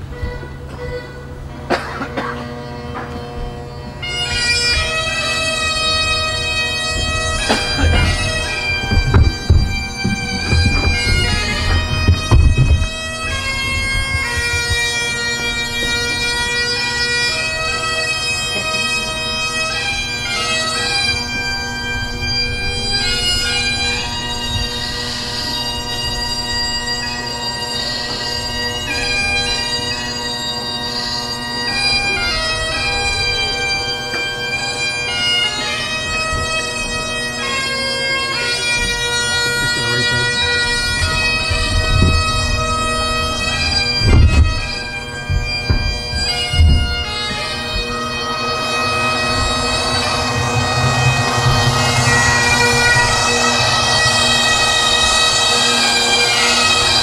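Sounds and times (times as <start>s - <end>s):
bagpipe band playing: 0.0s - 57.0s
low thumps: 5.8s - 16.3s, 40.5s - 57.0s.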